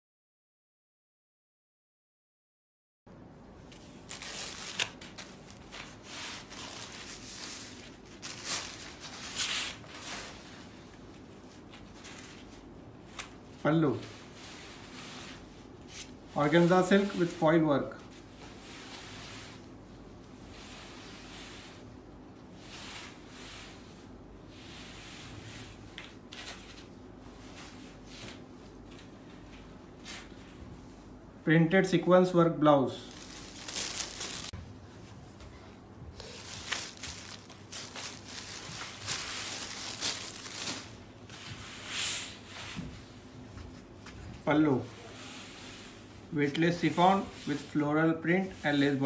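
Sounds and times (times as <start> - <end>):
silk fabric rustling: 3.8 - 30.6, 33.1 - 35.1, 36.1 - 43.2.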